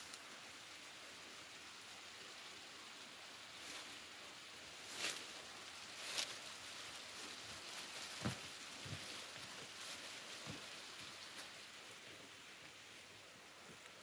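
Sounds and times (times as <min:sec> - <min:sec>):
steady hiss: 0:00.0 - 0:14.0
dry plants rustling: 0:03.3 - 0:14.0
soft hoof thuds: 0:08.0 - 0:11.6.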